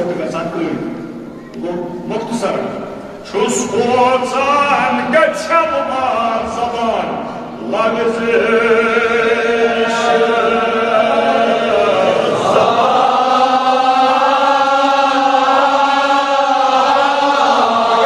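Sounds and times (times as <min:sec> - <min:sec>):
man chanting: 0:01.6 - 0:08.9.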